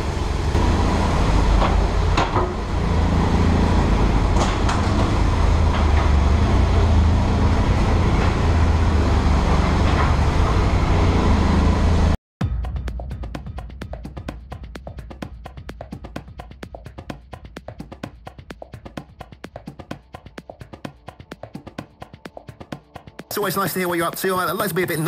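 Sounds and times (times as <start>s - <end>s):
low vehicle rumble: 0.0s - 12.2s.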